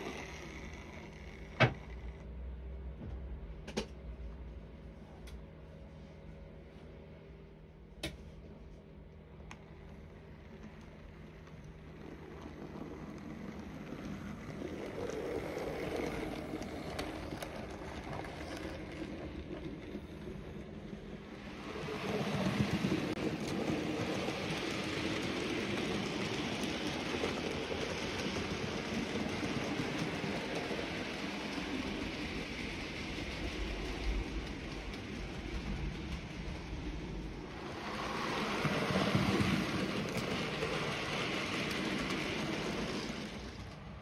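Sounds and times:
model train motor humming: 0.0s - 2.3s, 9.7s - 36.8s
wheels rumbling over rails: 0.0s - 4.5s, 8.0s - 44.0s.

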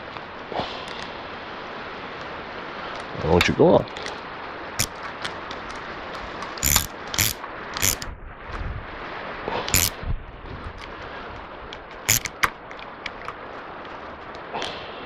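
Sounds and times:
steady background hiss: 0.0s - 8.2s, 8.9s - 10.1s
metal clicks and clanks: 6.6s - 8.1s, 12.1s - 13.4s.

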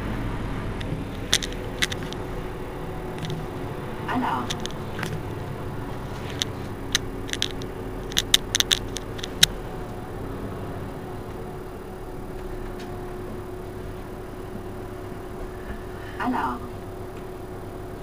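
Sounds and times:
bus engine idling: 0.0s - 18.0s
sharp irregular clicks: 0.8s - 10.0s.

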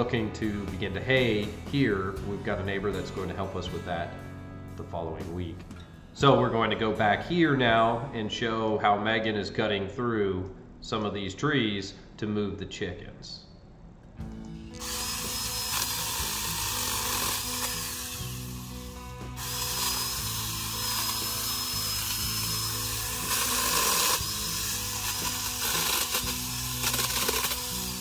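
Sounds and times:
background music with bass notes: 0.0s - 8.9s, 14.2s - 28.0s
power saw cutting branches: 14.7s - 28.0s.

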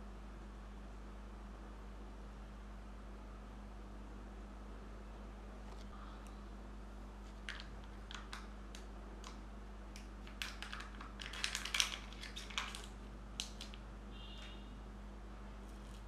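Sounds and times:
plastic egg clicks: 7.4s - 13.8s
seal crinkling and crackling: 10.0s - 13.8s.

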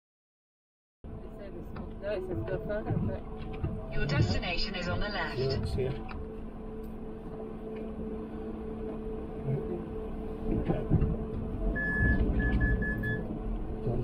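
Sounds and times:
van engine running: 5.3s - 14.0s
electronic beeps: 11.8s - 13.3s.

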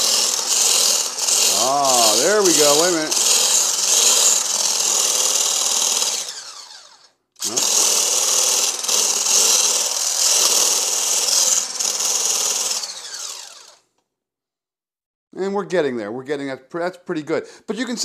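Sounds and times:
whisk whipping egg whites: 0.0s - 6.6s
electric blender motor whirring: 0.0s - 13.9s.

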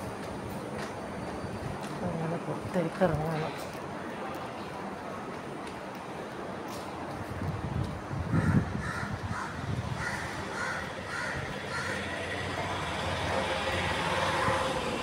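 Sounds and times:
crows cawing: 8.4s - 12.2s.

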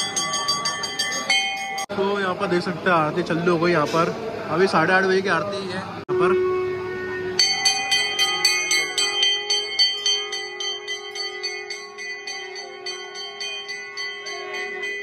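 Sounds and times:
brass bells ringing: 0.0s - 2.2s, 7.2s - 15.0s.

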